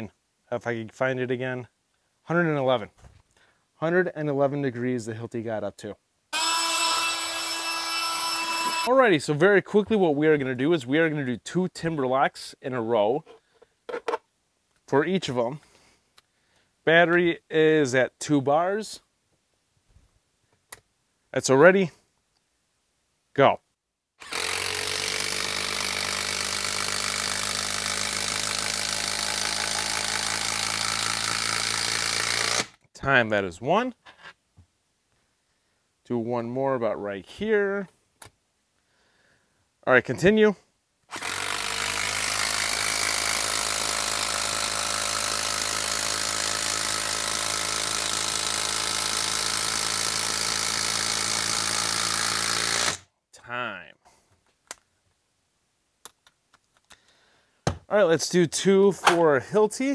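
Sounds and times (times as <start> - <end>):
impact driver hammering: 6.4 - 8.9, 41.2 - 53.0.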